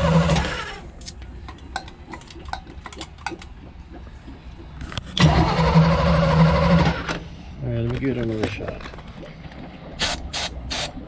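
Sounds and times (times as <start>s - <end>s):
boat engine starter cranking: 5.2s - 7.2s.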